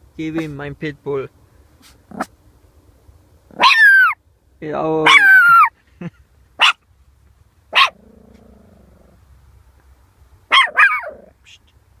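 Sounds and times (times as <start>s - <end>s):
small dog yapping: 1.8s - 2.3s, 3.5s - 4.2s, 5.0s - 5.7s, 6.6s - 6.8s, 7.7s - 8.6s, 10.5s - 11.4s.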